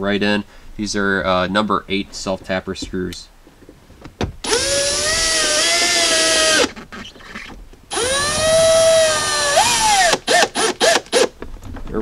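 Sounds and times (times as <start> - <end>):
cordless drill driving screws: 4.4 - 11.4.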